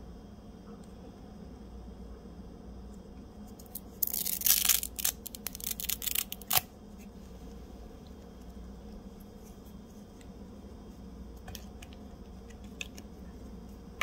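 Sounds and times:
packaging crinkling and tearing: 3.6 - 6.7.

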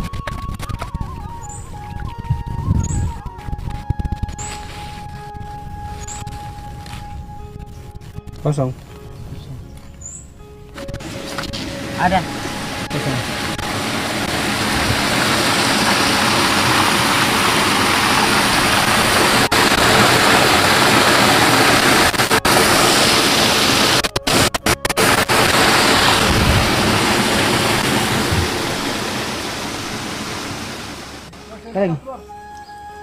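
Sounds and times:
steady rushing noise: 10.8 - 31.6.

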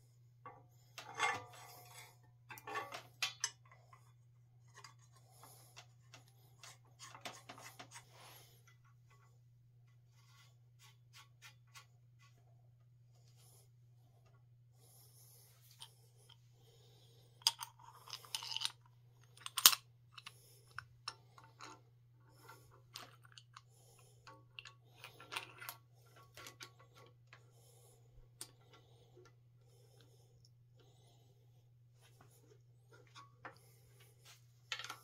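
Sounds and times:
metal parts clicking and clinking: 1.0 - 4.0, 17.4 - 23.6, 24.2 - 27.4.

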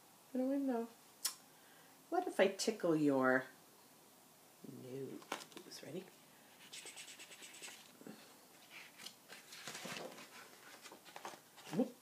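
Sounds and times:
page turning: 5.2 - 5.9, 6.6 - 8.0, 8.6 - 11.9
fingertips scratching glossy paper: 6.6 - 7.9.

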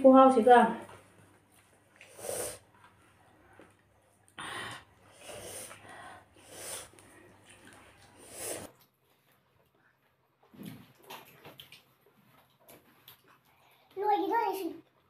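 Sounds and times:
person breathing and sniffing: 2.0 - 2.7, 4.4 - 7.4, 8.1 - 8.7.

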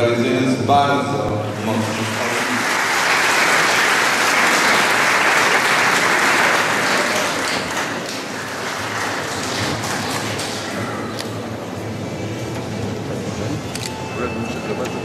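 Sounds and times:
audience applauding: 1.4 - 11.5.

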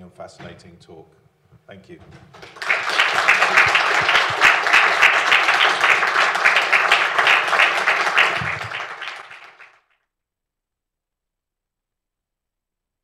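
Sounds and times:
audience applauding: 2.3 - 9.8.

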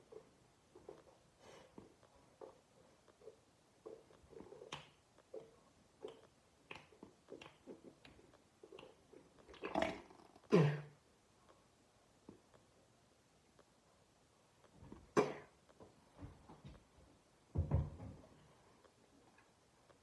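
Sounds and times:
spitting into a sink: 9.5 - 10.8.

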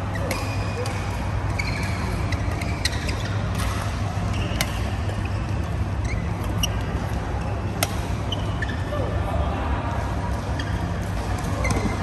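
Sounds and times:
shoe squeaks on court: 0.1 - 7.5, 8.2 - 8.9
racket hitting shuttlecock: 3.4 - 5.2, 7.8 - 8.2.

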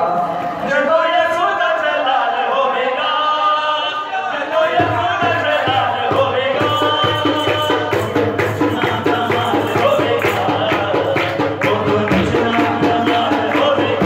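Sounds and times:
men singing a hymn: 0.6 - 14.0
hand drum beat: 4.8 - 14.0
jingling percussion: 4.8 - 14.0.

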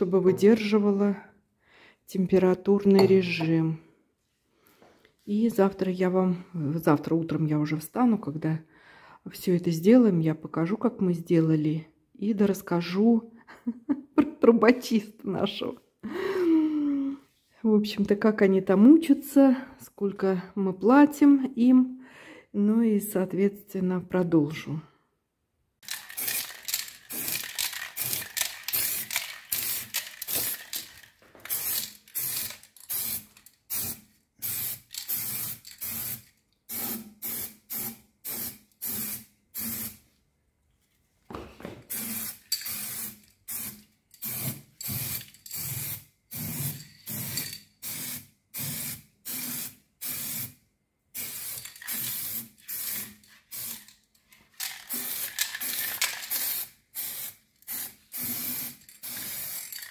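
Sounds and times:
aerosol can spraying: 27.1 - 27.4, 28.0 - 30.9, 31.5 - 40.0, 41.9 - 50.5, 51.2 - 53.9, 54.9 - 59.8.

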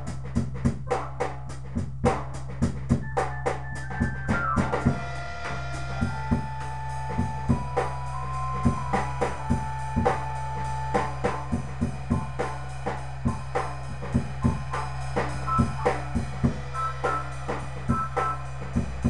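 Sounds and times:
drum kit groove: 0.0 - 19.0
steady low hum: 4.0 - 19.0.

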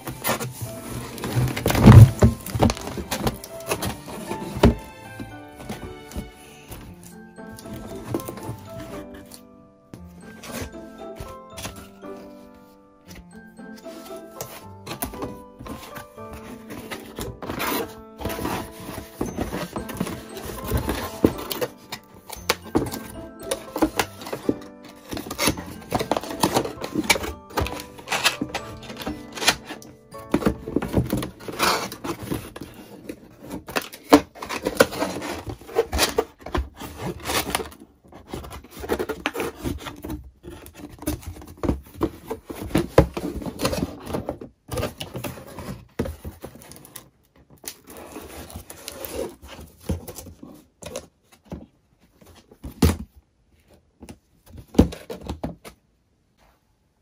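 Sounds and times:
clicks and knocks of items handled: 0.0 - 9.4, 10.3 - 12.0, 13.1 - 55.8
background music: 0.0 - 44.2.

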